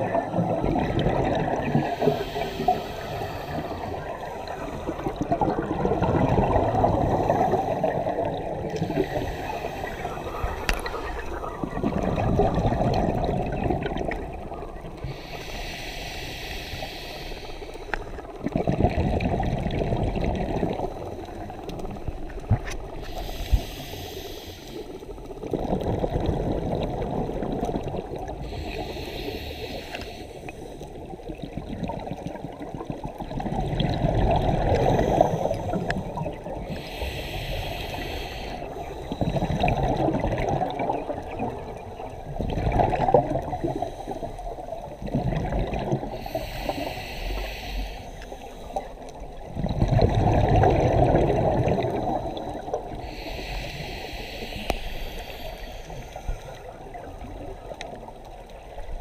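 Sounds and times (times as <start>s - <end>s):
gurgling exhaled bubbles: 0.0s - 15.6s, 18.0s - 23.9s, 24.8s - 47.5s, 48.2s - 59.0s
diver breathing through regulator: 1.8s - 5.3s, 6.7s - 12.1s, 15.0s - 18.2s, 22.9s - 25.2s, 28.4s - 31.0s, 34.2s - 40.3s, 43.5s - 44.8s, 45.8s - 49.2s, 51.2s - 57.0s.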